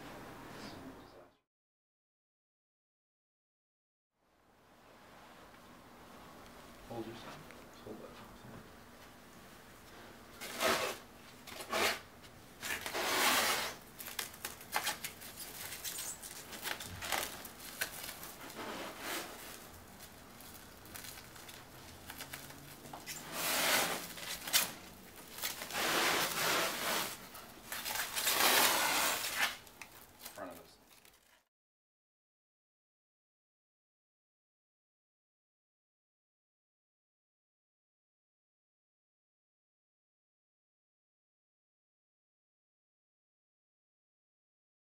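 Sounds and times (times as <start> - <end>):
plastic stretch wrap pulled off roll: 12.6 - 31.4.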